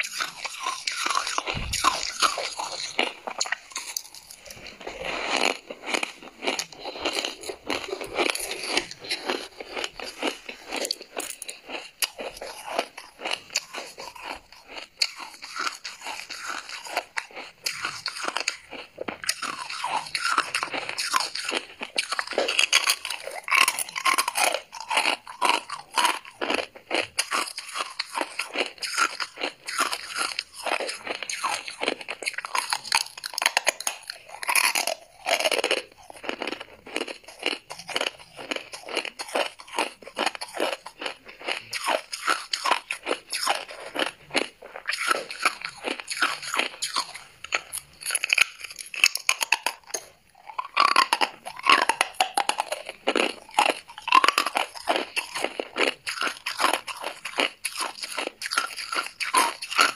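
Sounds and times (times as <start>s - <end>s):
frost being chewed crunching: 0.0s - 59.9s.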